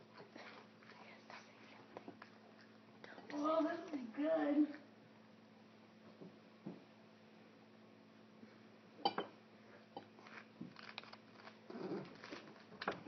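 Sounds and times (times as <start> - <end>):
dog chewing and crunching food: 10.1 - 13.0.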